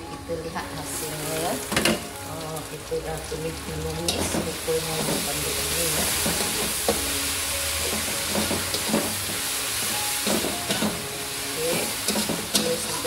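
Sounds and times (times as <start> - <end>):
food sizzling in oil: 0.0 - 13.0
metal spatula scraping a wok: 4.1 - 13.0.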